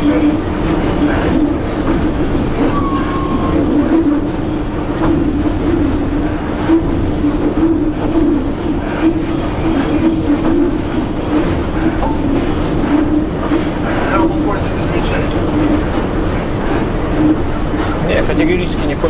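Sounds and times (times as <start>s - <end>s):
locomotive cab hum: 0.0s - 19.0s
wheels rumbling on rails: 0.0s - 19.0s
short high tone: 2.6s - 3.7s.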